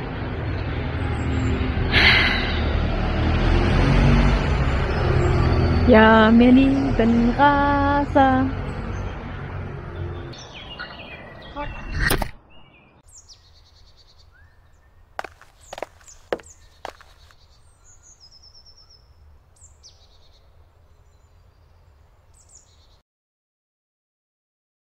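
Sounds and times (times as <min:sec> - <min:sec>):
birds chirping: 0:08.4 - 0:23.0.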